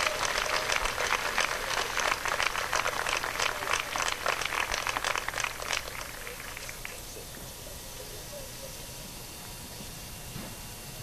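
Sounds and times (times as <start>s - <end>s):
crowd applauding: 0.0s - 7.4s.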